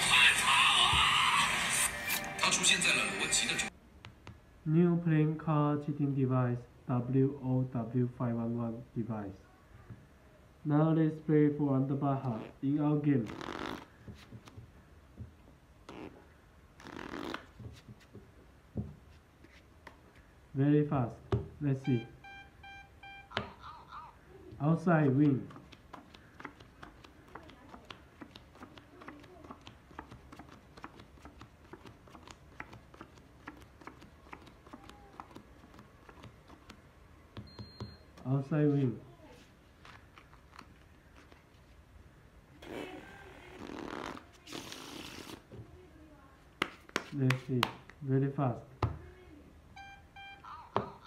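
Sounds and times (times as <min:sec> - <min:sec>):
playing cards shuffling: 0:13.2 - 0:14.6, 0:16.8 - 0:18.2, 0:25.0 - 0:36.8, 0:39.4 - 0:41.8, 0:43.4 - 0:45.6
cards tapping: 0:25.0 - 0:37.6, 0:46.6 - 0:48.0.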